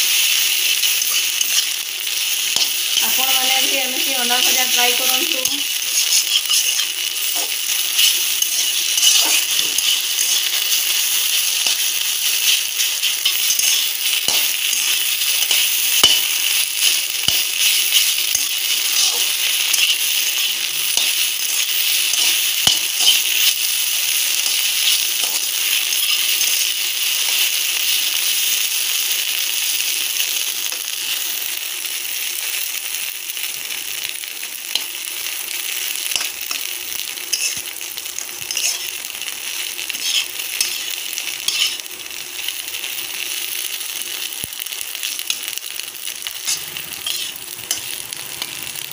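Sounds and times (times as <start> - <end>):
eggs sizzling in hot oil: 0.0 - 48.9
metal spatula clinking on pan: 5.4 - 11.8, 12.4 - 16.3, 17.3 - 23.5, 37.3 - 37.6, 38.5 - 38.9, 40.0 - 40.9, 41.5 - 41.8, 46.4 - 48.5.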